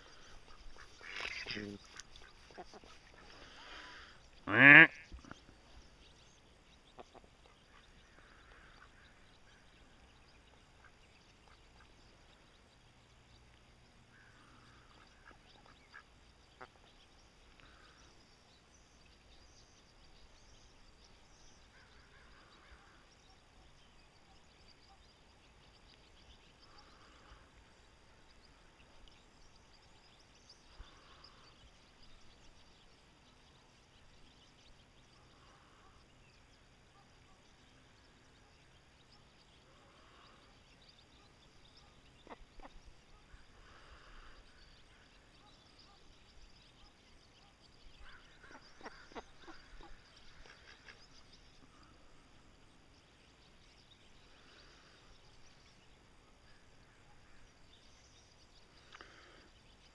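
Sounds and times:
ducks quacking softly: 0.0s - 5.8s, 6.7s - 12.4s, 14.0s - 18.2s, 41.2s - 46.1s, 46.8s - 52.3s.

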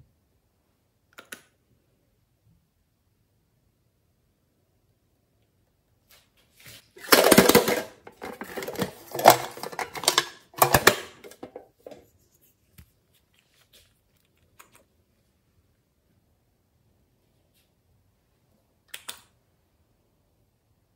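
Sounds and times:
plastic bottle clicks and rattles: 7.0s - 12.0s.

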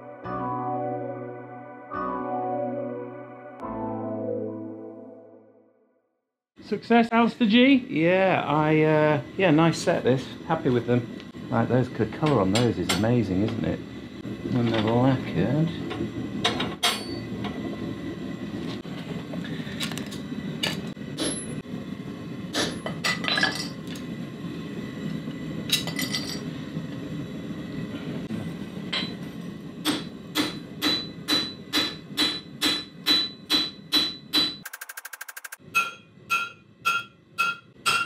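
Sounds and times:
forge burner running: 6.6s - 34.4s
hammer ringing on anvil: 29.9s - 34.6s, 35.6s - 38.0s.

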